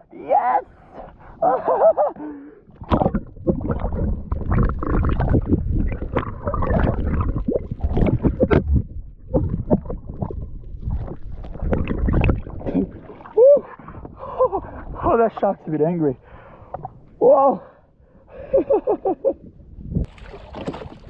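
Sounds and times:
water sloshing and splashing: 2.7s - 15.8s, 20.0s - 21.0s.

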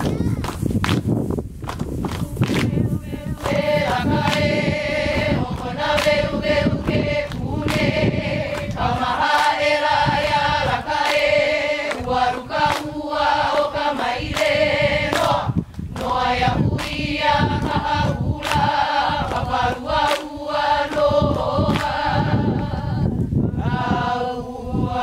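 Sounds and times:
hand claps: 0.0s - 4.6s, 5.6s - 16.2s, 16.8s - 22.7s
group chanting in unison: 2.3s - 25.0s.

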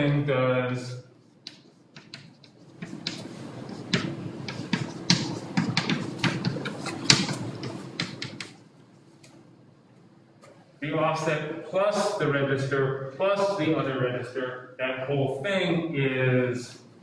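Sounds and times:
chalk writing on blackboard: 1.2s - 8.6s.

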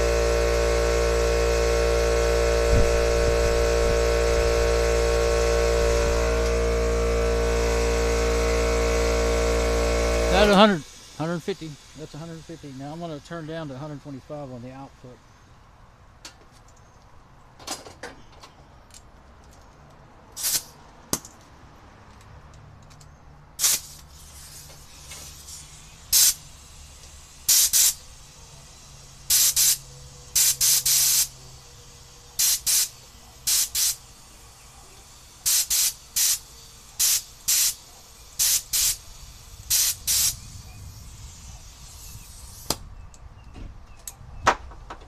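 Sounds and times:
compressed air hissing blasts: 0.0s - 14.4s, 20.3s - 20.9s, 23.6s - 43.5s.

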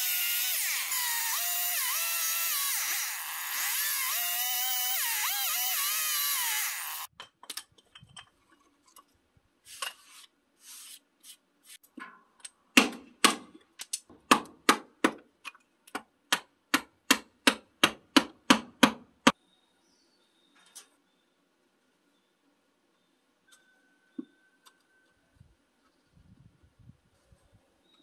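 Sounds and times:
hammer striking wood chisel: 12.8s - 13.6s, 14.3s - 15.2s, 16.3s - 19.4s.

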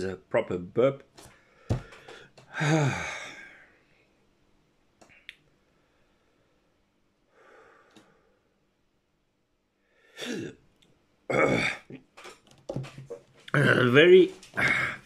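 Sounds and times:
man breathing harshly: 1.3s - 3.8s, 7.3s - 8.4s, 14.6s - 15.0s
man sighing: 1.9s - 3.8s, 14.6s - 15.0s.

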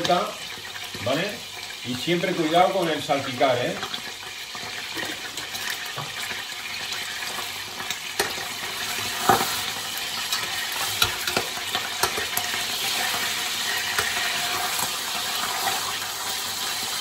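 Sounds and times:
meat sizzling in oil: 0.0s - 17.0s
metal tongs clicking on pot: 7.8s - 8.4s, 10.2s - 13.2s, 13.8s - 14.9s.

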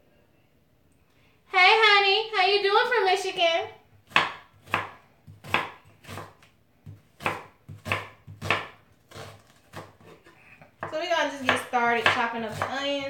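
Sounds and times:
knife cutting onion on wooden board: 4.1s - 13.0s.

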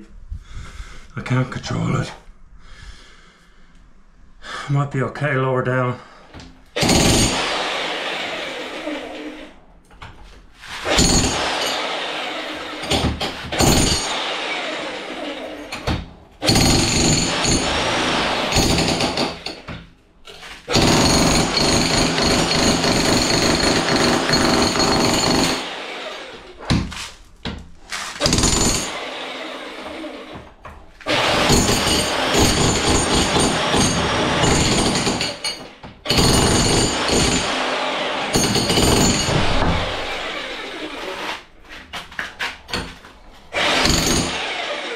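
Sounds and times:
jackhammer chipping brick: 6.8s - 9.4s, 10.8s - 19.7s, 20.7s - 26.9s, 28.1s - 30.3s, 31.1s - 41.0s, 42.7s - 44.9s.

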